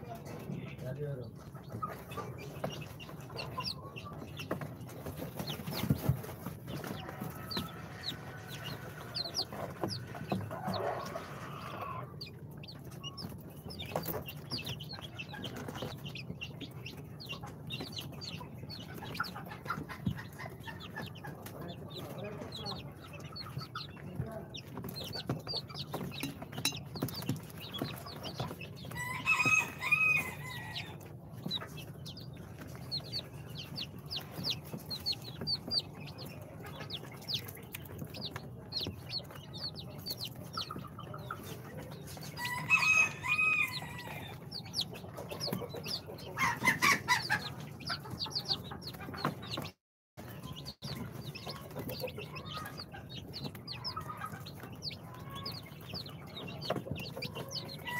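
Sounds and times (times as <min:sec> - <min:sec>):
chicks peeping: 0:00.0 - 0:57.9.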